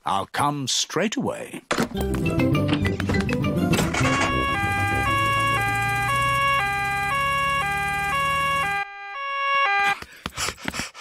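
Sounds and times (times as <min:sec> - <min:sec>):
cartoon two-tone siren: 0:03.8 - 0:10.0.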